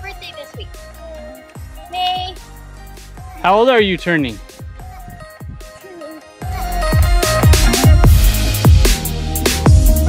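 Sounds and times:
music with deep bass kicks: 0.0s - 5.8s, 6.4s - 10.0s.

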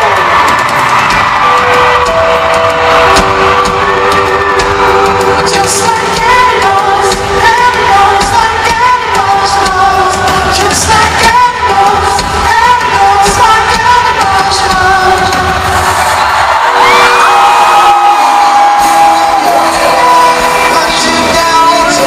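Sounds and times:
steady driving drum beat: 0.0s - 22.0s
man singing lead vocal: 4.9s - 16.0s, 18.4s - 22.0s.

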